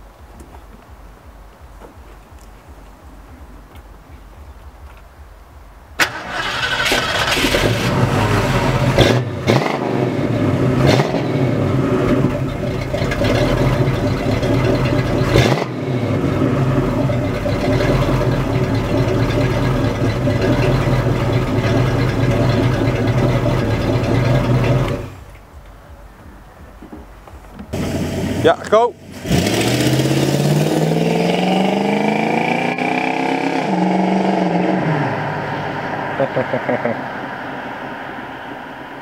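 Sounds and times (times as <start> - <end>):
car engine exhaust rumbling: 0.0 - 39.0
engine starting: 6.0 - 9.2.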